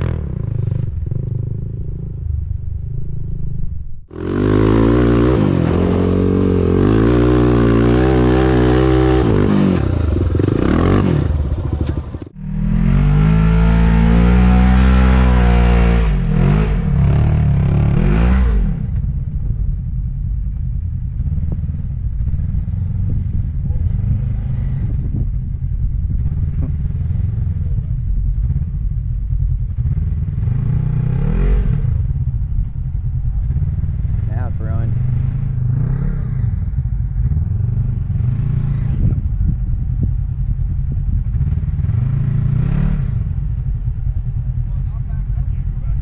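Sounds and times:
low engine rumble: 0:00.0 - 0:46.0
engine revving hard: 0:04.1 - 0:11.5, 0:12.4 - 0:18.9, 0:41.4 - 0:43.3.

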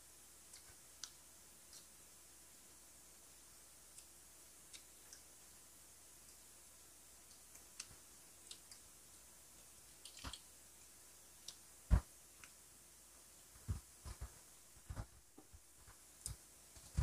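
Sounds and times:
wet mouth clicks and chewing: 0:10.0 - 0:10.5.

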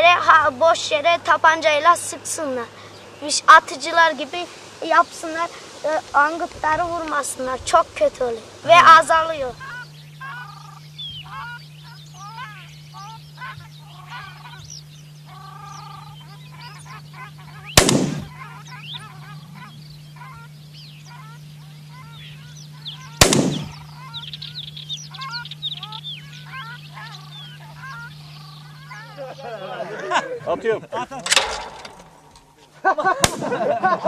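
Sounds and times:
steady low hum: 0:00.0 - 0:34.0
waterfowl honking: 0:00.0 - 0:34.0
gunshots: 0:17.8 - 0:18.4, 0:23.2 - 0:23.8, 0:33.2 - 0:33.8.

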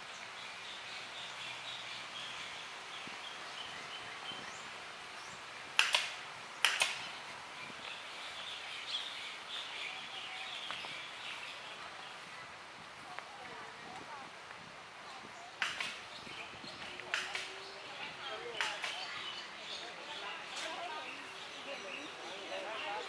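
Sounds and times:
birds chirping: 0:00.0 - 0:12.6, 0:14.9 - 0:23.0
steady background noise: 0:00.0 - 0:23.0
sharp clicks: 0:05.8 - 0:07.1, 0:15.6 - 0:16.0, 0:17.0 - 0:17.5.

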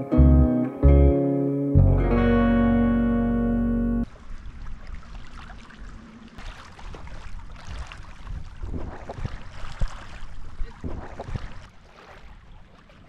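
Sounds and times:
paddle splashing in water: 0:04.1 - 0:13.0
wind rumbling on microphone: 0:04.1 - 0:13.0.

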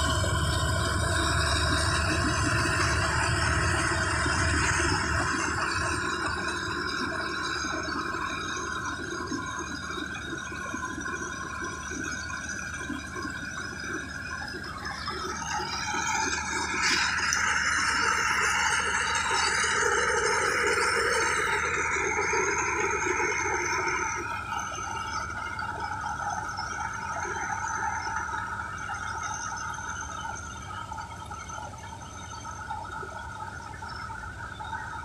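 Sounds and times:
deep rumble: 0:00.0 - 0:08.2
combine harvester whining drone: 0:00.0 - 0:32.0.

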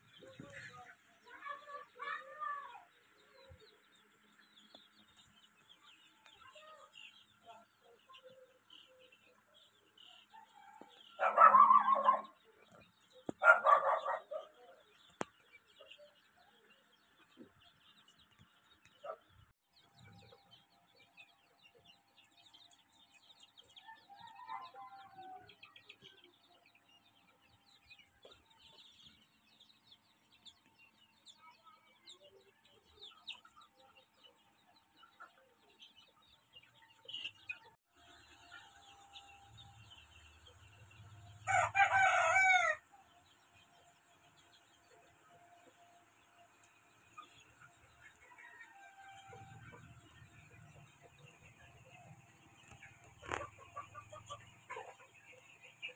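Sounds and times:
chicks peeping: 0:00.0 - 0:55.9
loud chicken calls: 0:10.8 - 0:12.3, 0:41.4 - 0:42.8.

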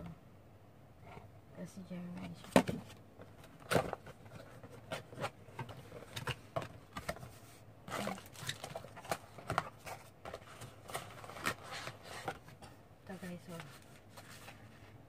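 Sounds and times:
cardboard box being opened: 0:03.4 - 0:12.5.

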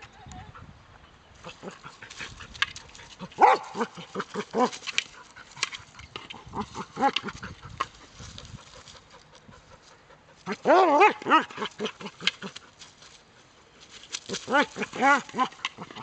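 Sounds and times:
rustling in dry leaves: 0:01.3 - 0:16.0
dog yelping and whining: 0:10.5 - 0:12.2.

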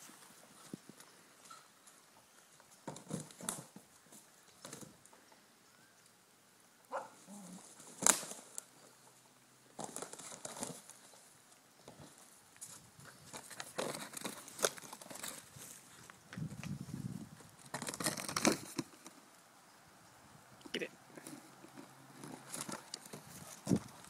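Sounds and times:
rustling in dry leaves: 0:07.0 - 0:19.3.

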